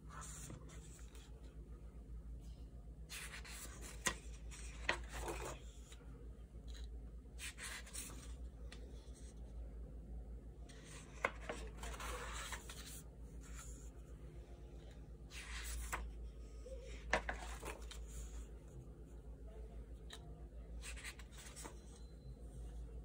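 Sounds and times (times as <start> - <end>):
paper pages rustling: 10.7 - 13.9, 15.3 - 16.2, 16.9 - 18.5, 20.8 - 22.0.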